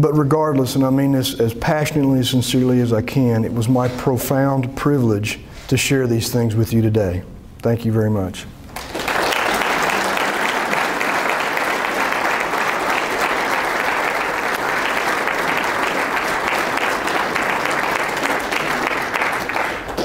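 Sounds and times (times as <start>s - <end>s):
audience applauding: 8.7s - 20.0s.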